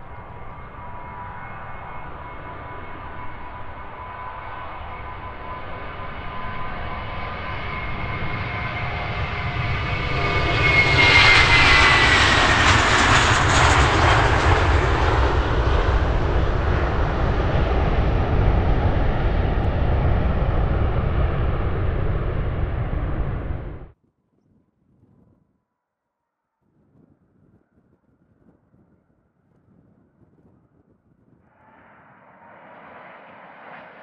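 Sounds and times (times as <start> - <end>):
jet airliner engines whining: 0.0 - 23.9, 31.6 - 34.0
jet engine rumble: 0.0 - 24.0, 30.0 - 34.0.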